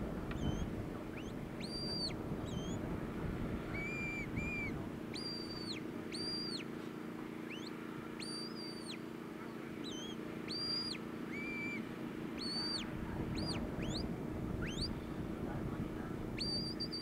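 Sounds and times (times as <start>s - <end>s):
low background noise: 0.0s - 17.0s.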